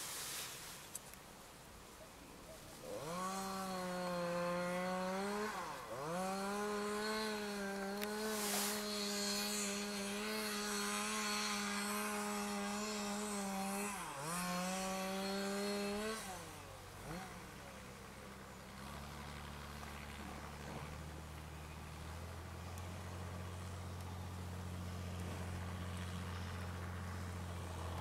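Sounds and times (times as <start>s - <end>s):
chainsaw cutting ice: 2.8s - 21.4s.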